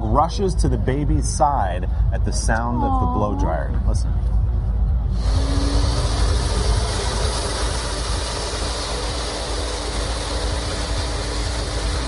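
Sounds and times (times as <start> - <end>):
faint motor hum: 0.0 - 12.0
blow dryer air rushing: 5.1 - 12.0.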